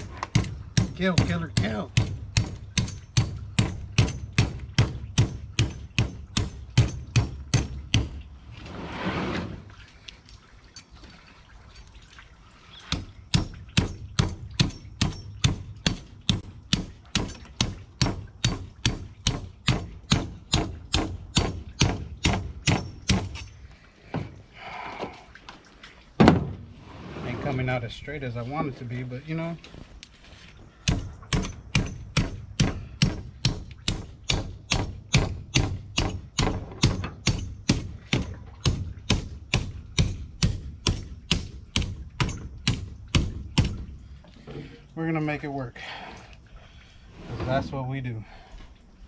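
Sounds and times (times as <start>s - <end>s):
machete chopping fish scales: 0.3s - 8.2s, 30.8s - 43.8s.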